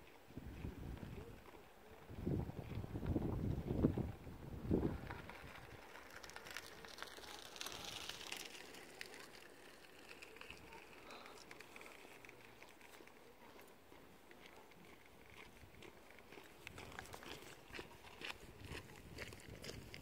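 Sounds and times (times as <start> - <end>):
wind buffeting microphone: 0.3 - 1.4, 2.0 - 6.4, 17.7 - 20.0.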